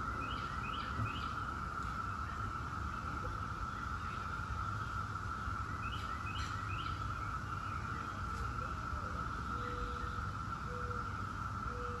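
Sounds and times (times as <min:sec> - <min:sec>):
cicadas droning: 0:00.0 - 0:12.0
bird chirps: 0:05.6 - 0:08.8.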